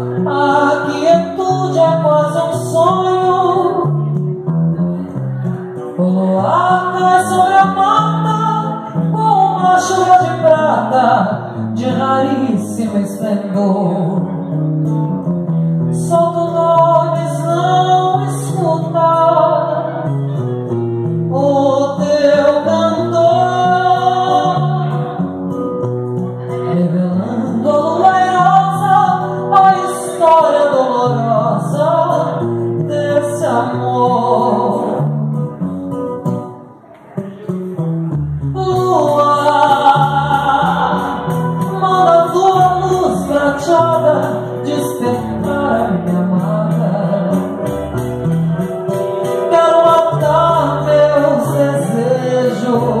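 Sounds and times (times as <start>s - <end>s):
acoustic guitar: 0.0s - 53.0s
woman singing a slow ballad: 0.1s - 4.1s, 5.9s - 14.4s, 15.9s - 20.0s, 21.3s - 25.3s, 26.5s - 35.1s, 38.5s - 47.7s, 49.5s - 53.0s.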